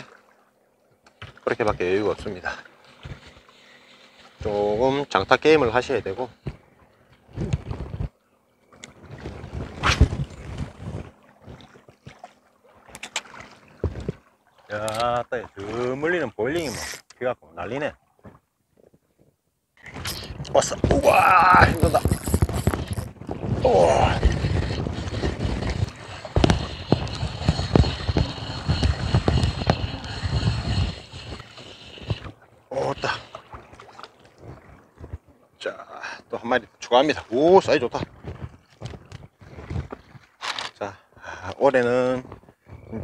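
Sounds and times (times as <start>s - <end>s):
fishing reel whining: 19.8s - 20.4s, 21.0s - 33.4s
reel clicks and knocks: 24.2s - 32.3s.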